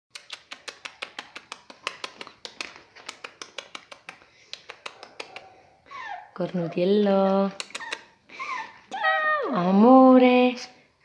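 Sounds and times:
puppies scratching and clicking: 0:00.2 - 0:05.5.

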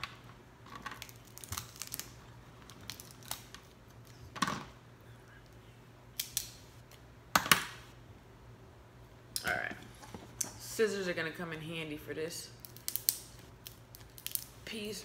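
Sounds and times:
crab shells cracking: 0:00.8 - 0:04.1, 0:12.6 - 0:14.6.

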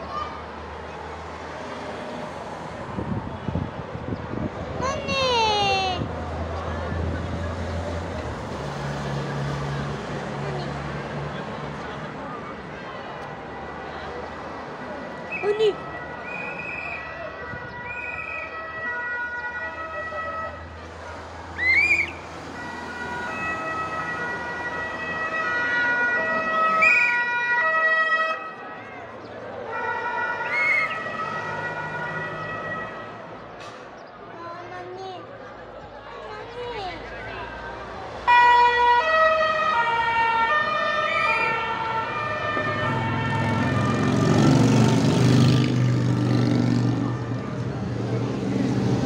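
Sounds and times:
police two-tone sirens: 0:14.9 - 0:33.4, 0:38.2 - 0:49.0
high siren chirp: 0:38.3 - 0:44.7
motorcycle engine passing: 0:43.0 - 0:47.3.

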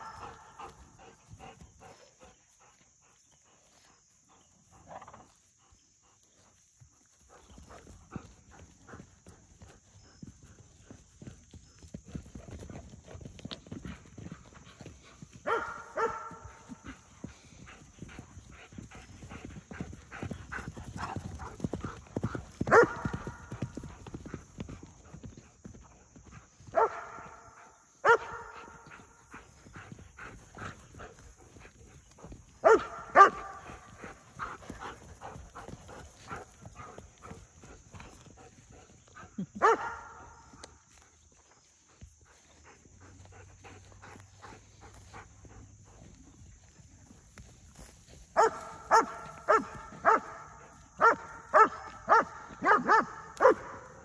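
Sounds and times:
dog barking: 0:00.0 - 0:00.8, 0:15.4 - 0:16.8, 0:22.7 - 0:23.3, 0:26.7 - 0:29.1, 0:32.6 - 0:33.9, 0:39.5 - 0:40.5, 0:48.4 - 0:54.0
horse hoofbeats thudding: 0:06.3 - 0:54.0.

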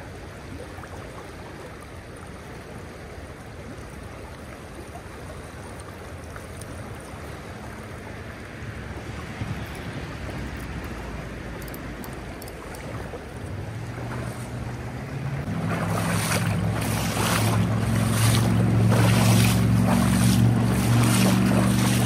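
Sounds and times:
creek water rushing: 0:00.0 - 0:22.0
steady low hum: 0:10.8 - 0:22.0.

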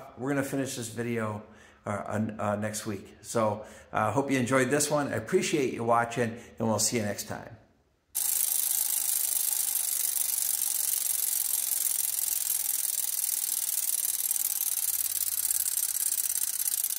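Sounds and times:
bicycle freewheel ratchet buzzing: 0:08.2 - 0:16.9.

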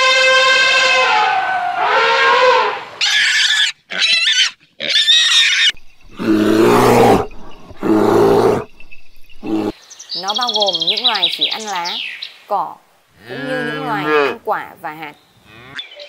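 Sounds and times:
pig squealing: 0:00.6 - 0:08.7
bear growling: 0:06.0 - 0:09.8.

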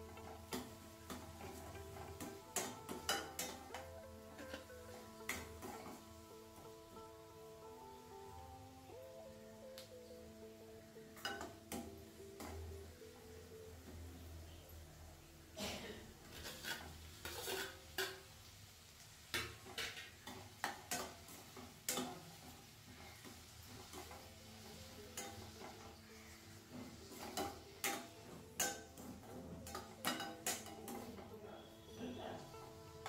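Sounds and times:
metal spatula scraping a pan: 0:00.0 - 0:06.1, 0:16.2 - 0:18.4, 0:19.3 - 0:33.0
faint sizzle: 0:00.0 - 0:33.0.

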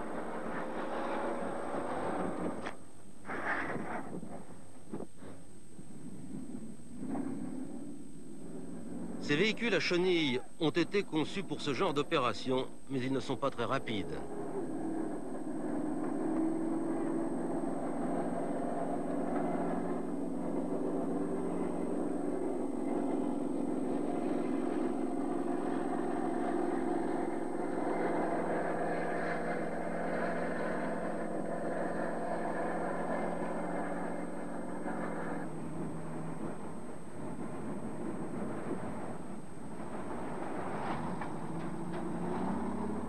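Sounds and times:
landing craft engine drone: 0:13.0 - 0:43.0.

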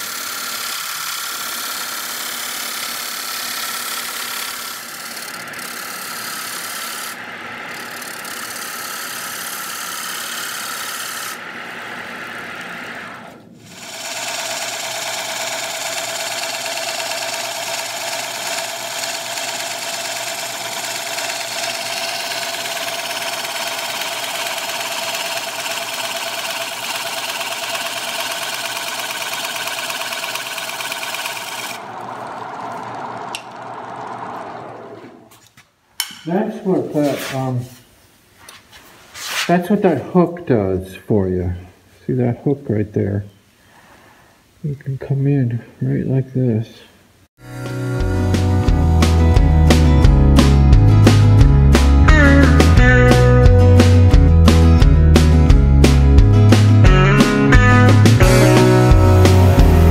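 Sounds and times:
gouge cutting spinning wood: 0:00.0 - 0:35.4
lathe motor hum: 0:00.0 - 0:35.4.

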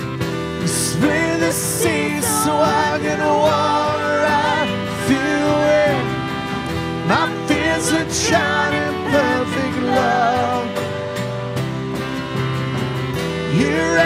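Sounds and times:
keyboard: 0:00.0 - 0:14.0
strummed acoustic guitar: 0:00.0 - 0:14.0
voices singing long sliding notes: 0:00.8 - 0:11.2.

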